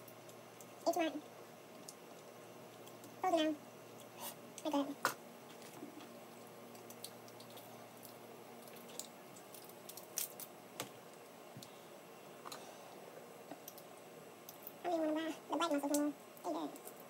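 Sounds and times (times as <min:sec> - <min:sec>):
crab shell cracking by hand: 0:06.7 - 0:10.6.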